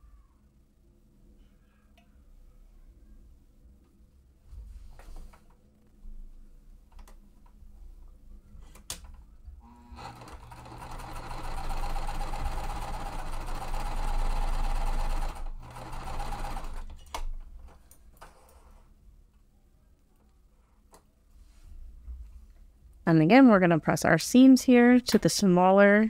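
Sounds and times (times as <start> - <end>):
sewing machine stitching: 9.6 - 17.0.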